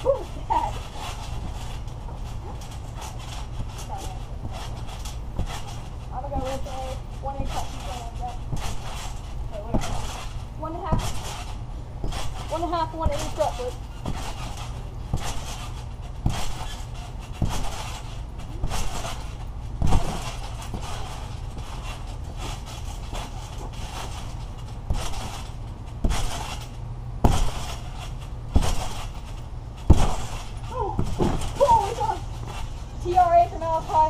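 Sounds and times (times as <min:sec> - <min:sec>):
steady low rumble: 0:00.0 - 0:34.0
thumps on trampoline mat: 0:00.1 - 0:34.0.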